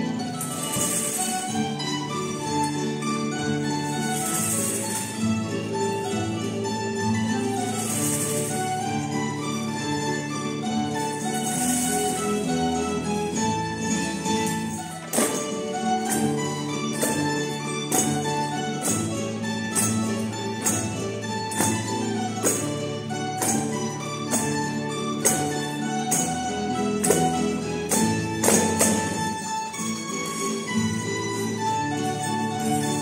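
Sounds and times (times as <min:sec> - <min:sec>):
folk band with guitars: 0:00.0 - 0:33.0
sharp percussive beat: 0:14.8 - 0:30.7.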